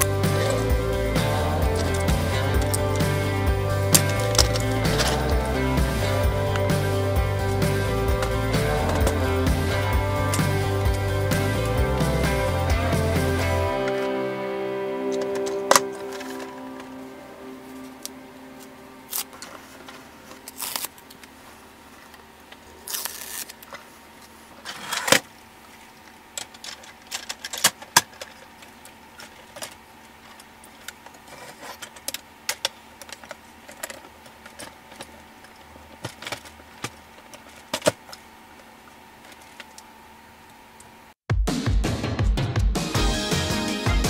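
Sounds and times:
plastic rustling: 19.1s - 32.0s
plastic parts clicking: 26.4s - 28.4s.

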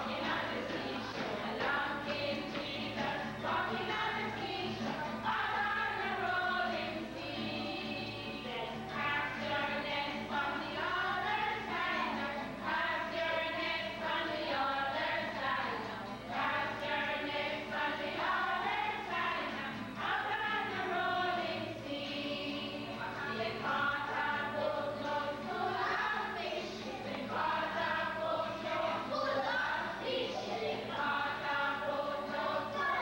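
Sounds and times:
children singing together: 0.0s - 33.0s.

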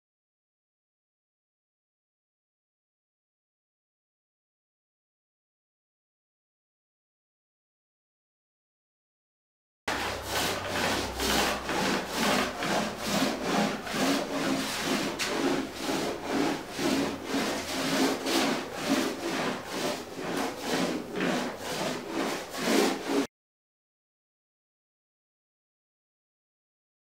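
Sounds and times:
foam roller rubbing strokes: 9.9s - 23.3s.

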